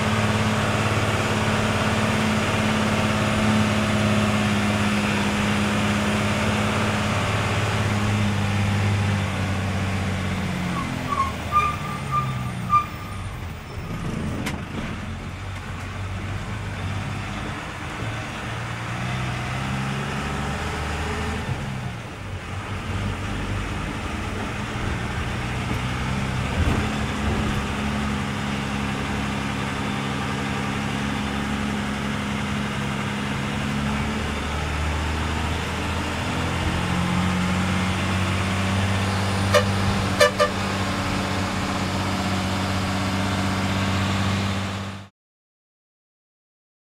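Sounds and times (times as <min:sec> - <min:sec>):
vehicle engine changing gears: 0:00.0 - 0:45.1
short horn beeps: 0:39.5 - 0:40.6.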